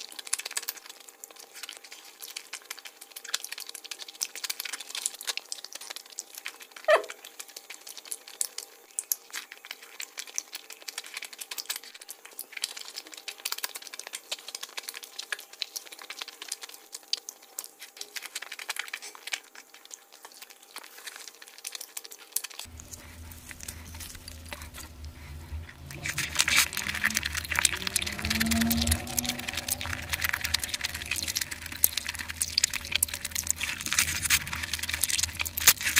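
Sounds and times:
food crackling as torn: 0:00.0 - 0:35.9
faint gliding tone: 0:22.7 - 0:35.9.

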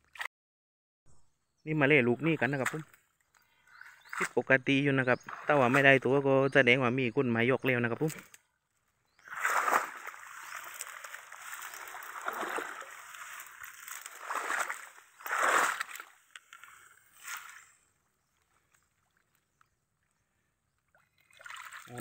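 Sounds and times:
swamp water sloshing and splashing: 0:02.2 - 0:06.5, 0:09.1 - 0:20.2, 0:20.8 - 0:22.0.

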